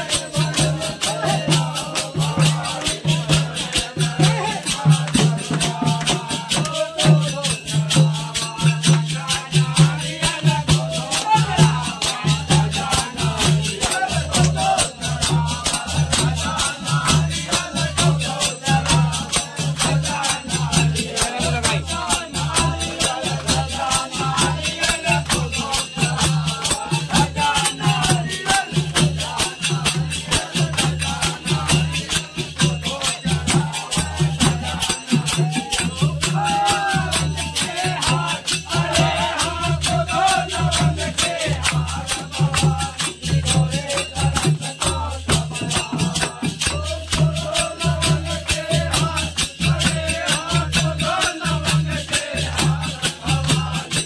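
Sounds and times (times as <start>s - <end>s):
dholak drums: 0.0s - 54.0s
men singing folk song: 0.0s - 54.0s
hand clapping: 17.0s - 39.6s, 40.2s - 54.0s.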